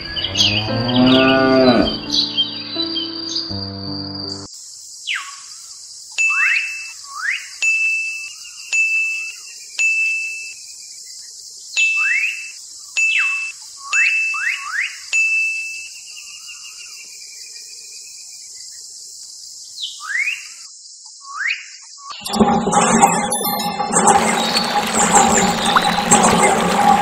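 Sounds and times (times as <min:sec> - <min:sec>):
whistled bird calls: 0:00.0 - 0:03.6, 0:06.2 - 0:10.6, 0:11.8 - 0:16.9, 0:19.8 - 0:22.3
rising bird chirps: 0:00.0 - 0:04.5.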